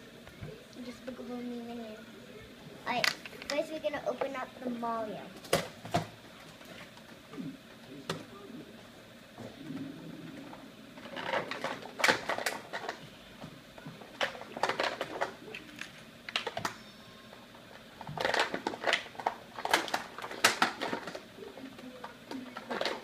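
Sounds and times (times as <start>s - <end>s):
packaging crackling and clicking: 10.5s - 13.0s, 14.1s - 16.8s, 18.0s - 21.2s.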